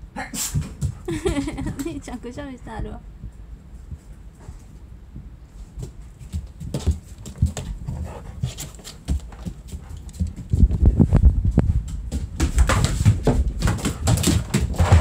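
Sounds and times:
kitten thumping and scrabbling: 0.4 - 2.1, 5.7 - 15.0
dog claws tapping on hard floor: 12.1 - 15.0.

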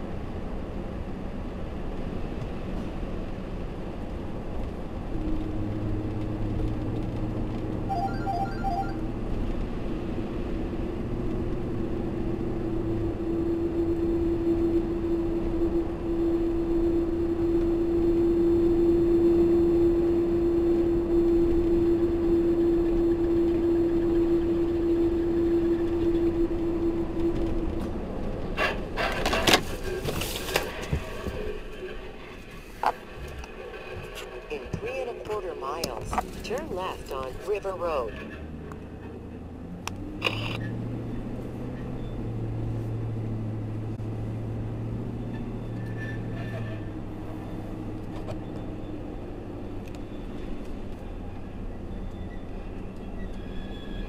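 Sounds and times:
tyre and engine noise: 0.0 - 54.0
short beeps: 7.9 - 9.0
droning tone: 13.4 - 27.8.

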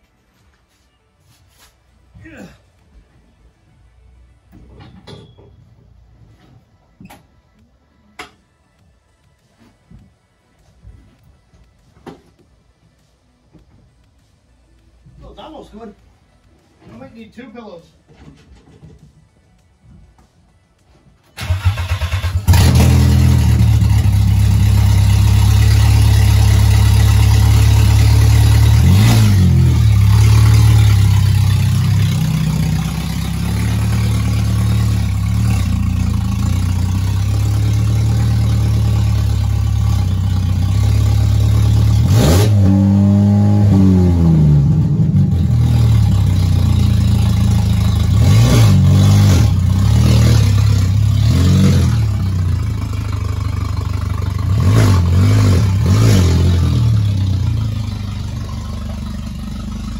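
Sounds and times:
loud lumpy car engine revving: 21.4 - 59.9.

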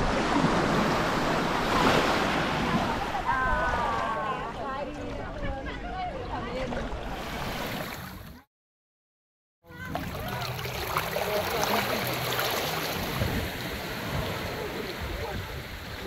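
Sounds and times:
small waves lapping on rocks: 9.9 - 14.5.

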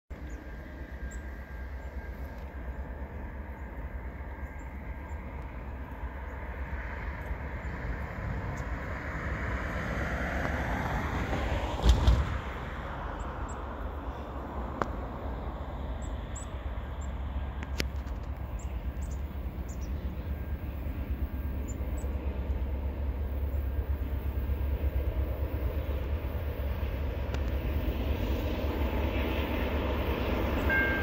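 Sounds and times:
vehicle passing: 6.6 - 16.0.

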